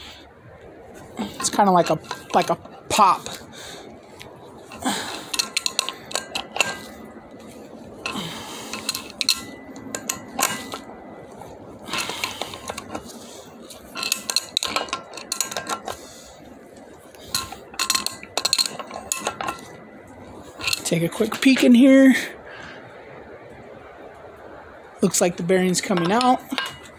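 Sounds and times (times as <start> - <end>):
wrenches clinking on metal: 1.2 - 3.5, 4.1 - 21.8, 25.8 - 26.9.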